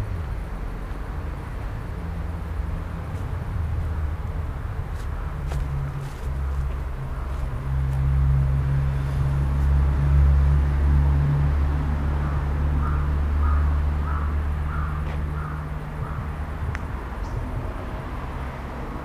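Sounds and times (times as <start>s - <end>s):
steady low rumble: 0.0s - 19.0s
bird calling: 12.2s - 16.3s.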